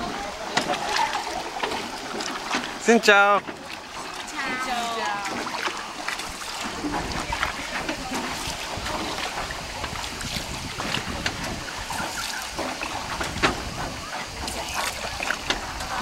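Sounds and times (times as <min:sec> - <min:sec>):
oars knocking: 0:00.0 - 0:16.0
water sloshing and splashing: 0:00.0 - 0:16.0
wind rumbling on microphone: 0:05.2 - 0:16.0.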